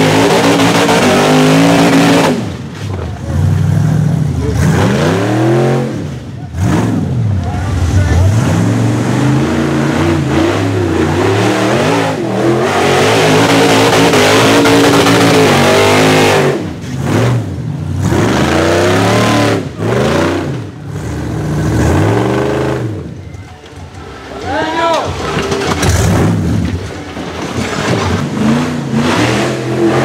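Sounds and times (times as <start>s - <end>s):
engine revving hard: 0.0s - 2.5s, 3.8s - 23.1s, 28.2s - 30.0s.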